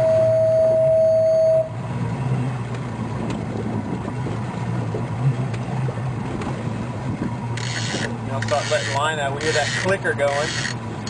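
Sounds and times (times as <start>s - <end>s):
loud electronic beep: 0.0s - 1.8s
boat motor humming: 0.0s - 11.0s.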